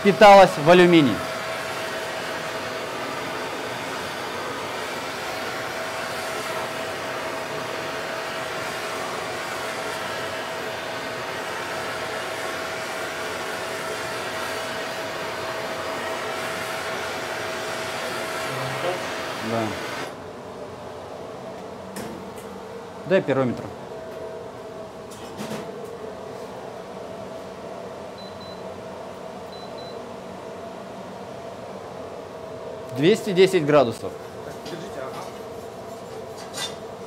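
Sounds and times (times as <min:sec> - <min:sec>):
gas torch flame hissing: 0:00.0 - 0:20.2.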